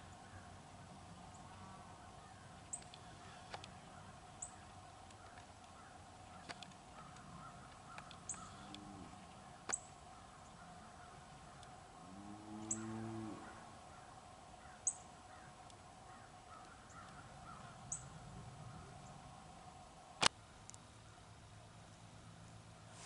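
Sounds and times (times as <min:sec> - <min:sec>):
distant bird calls: 0:00.0 - 0:22.1
low drawn-out animal call: 0:05.8 - 0:19.5.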